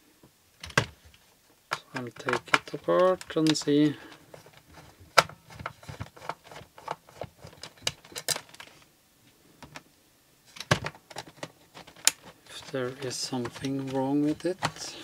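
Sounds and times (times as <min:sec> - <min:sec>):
screwdriver and plastic clicks: 0:01.7 - 0:04.0, 0:10.6 - 0:15.0.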